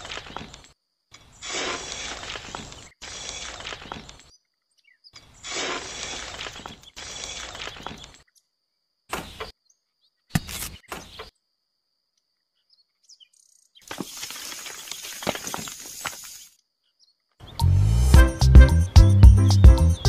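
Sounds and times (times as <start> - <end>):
metal shovel scraping stone chips: 1.4 - 3.8, 5.5 - 7.6, 13.9 - 16.4
stone chips clattering into metal bowl: 13.9 - 16.4
stone chips rattling poured out: 13.9 - 16.5.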